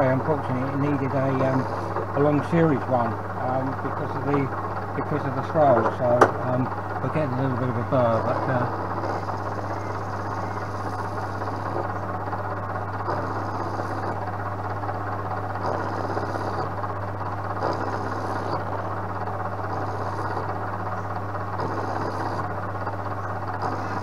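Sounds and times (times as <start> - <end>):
milling machine motor hum: 0.0 - 24.0
cutting hiss: 8.2 - 12.0, 13.0 - 14.3, 15.6 - 16.8, 17.5 - 18.8, 19.6 - 20.6, 21.6 - 22.6, 23.6 - 24.0.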